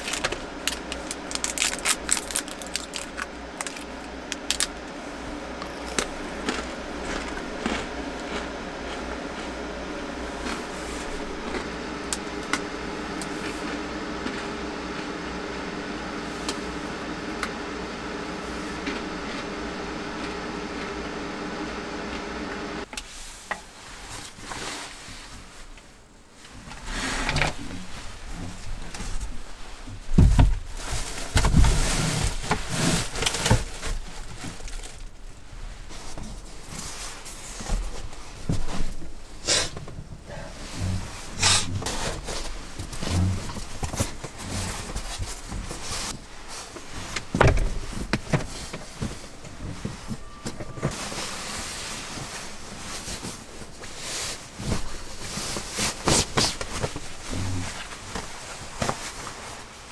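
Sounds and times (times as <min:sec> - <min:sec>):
vehicle interior hum with whine: 0:00.0 - 0:59.9
thuds and knocks of handling: 0:29.9 - 0:32.7.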